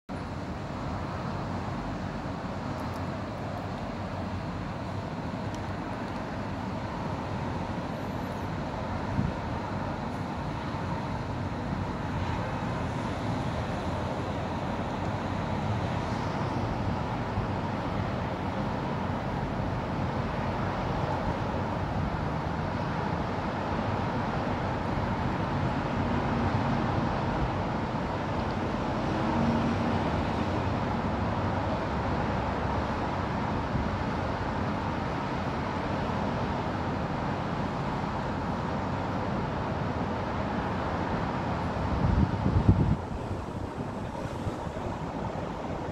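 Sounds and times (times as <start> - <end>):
distant road traffic: 0.1 - 45.9.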